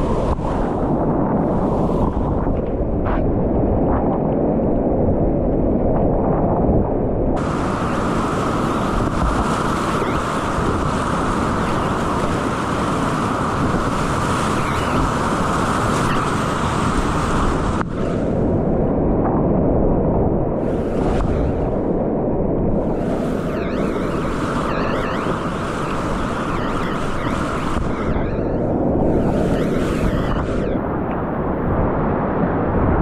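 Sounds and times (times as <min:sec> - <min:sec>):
rushing whitewater: 0:07.4 - 0:18.2.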